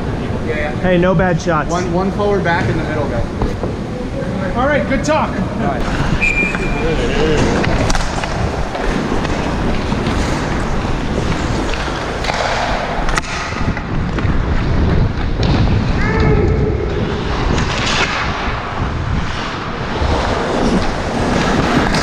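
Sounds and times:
wind on microphone: 0:05.7 - 0:22.0
ice skates scraping on ice: 0:05.8 - 0:16.0, 0:17.0 - 0:22.0
person shouting: 0:16.0 - 0:16.6.

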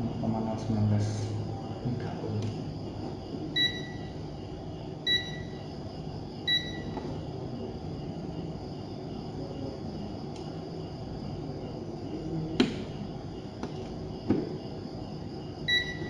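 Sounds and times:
low background hum: 0:00.0 - 0:16.0
multimeter high beeps: 0:03.5 - 0:04.2, 0:05.0 - 0:05.7, 0:06.4 - 0:07.0, 0:15.6 - 0:16.0.

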